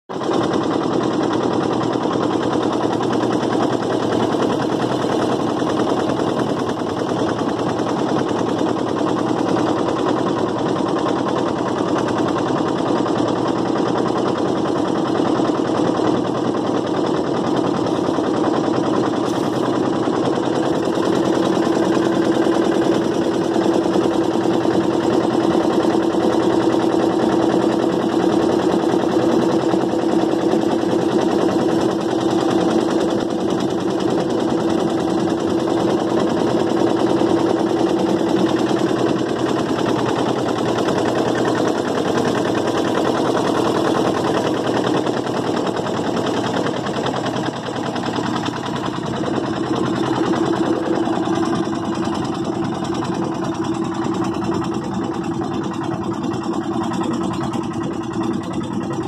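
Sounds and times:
boat engine running: 0.1s - 59.0s.

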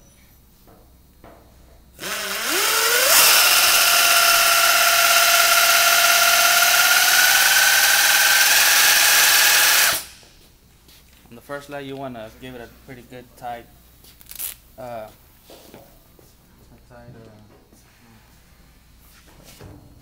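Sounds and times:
pneumatic filler gun whining: 2.0s - 10.3s
loud air hiss: 2.1s - 10.4s.

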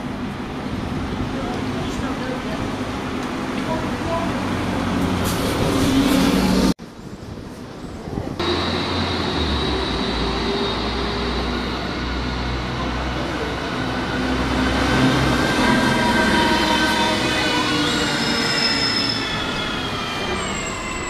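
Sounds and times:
diesel bus engines passing: 0.0s - 6.8s, 8.4s - 21.0s.

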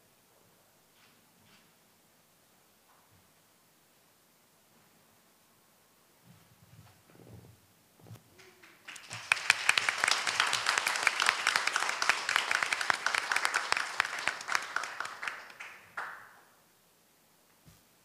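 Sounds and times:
audience applauding: 8.4s - 16.5s.

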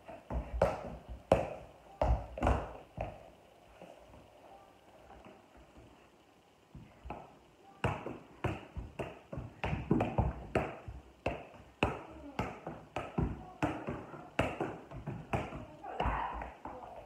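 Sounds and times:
soccer ball thuds on bare feet: 0.1s - 3.2s, 6.7s - 16.8s.

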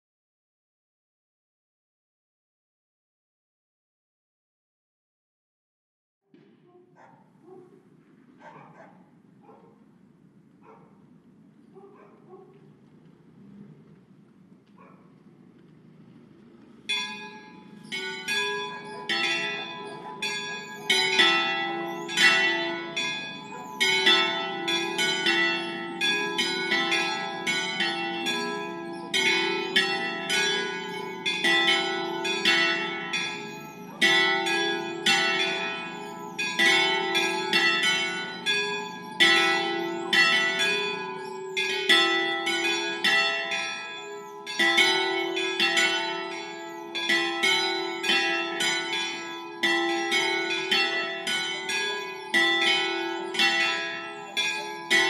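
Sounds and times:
church bells pealing: 16.4s - 55.0s.

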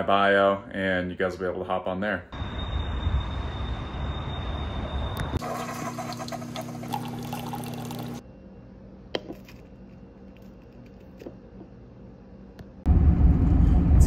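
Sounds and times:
liquid pouring: 5.4s - 8.2s
steady low hum: 5.9s - 14.0s.

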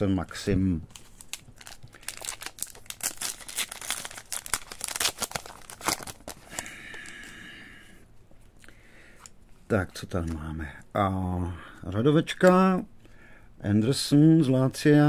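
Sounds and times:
card pack wrapper tearing and crinkling: 0.9s - 7.0s.

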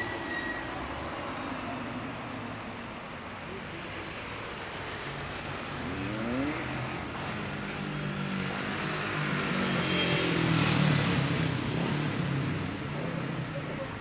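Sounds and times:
motor vehicle passing by: 5.6s - 7.4s.

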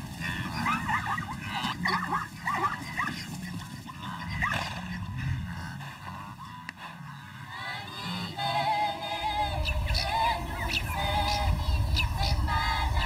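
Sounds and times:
zebras barking yelps: 0.0s - 8.5s.

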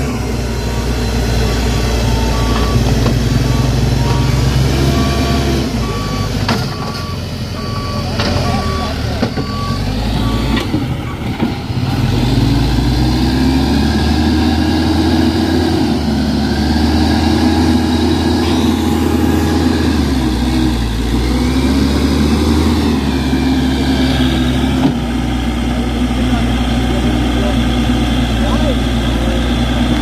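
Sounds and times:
reversing beeper: 0.0s - 11.2s, 16.5s - 24.3s
diesel engine revving: 0.0s - 30.0s.

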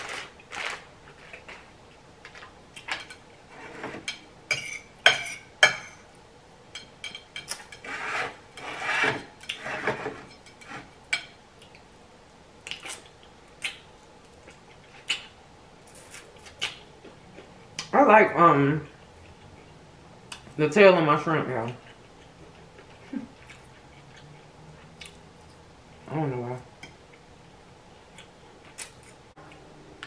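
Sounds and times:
fork clinking and scraping plate: 2.9s - 6.0s.

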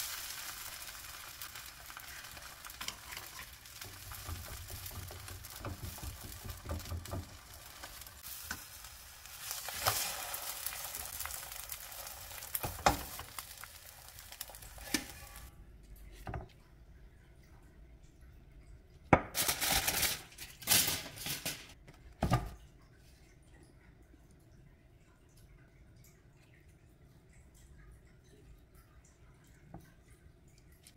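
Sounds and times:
eggs sizzling in a pan: 0.0s - 15.5s
spatula scraping and tapping pan: 2.0s - 8.8s, 12.0s - 15.5s.

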